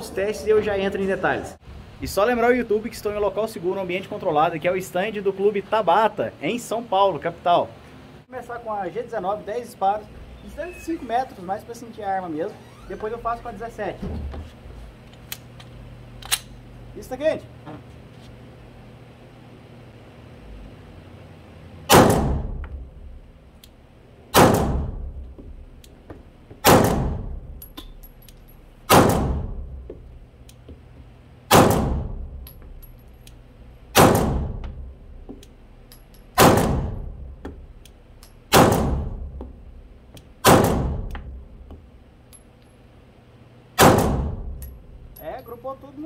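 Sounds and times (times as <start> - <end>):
pistol shots echoing indoors: 21.9 - 22.6, 24.3 - 25.2, 26.6 - 27.5, 28.9 - 29.6, 31.5 - 32.4, 33.9 - 34.7, 36.3 - 37.2, 38.5 - 39.3, 40.4 - 41.2, 43.8 - 44.7.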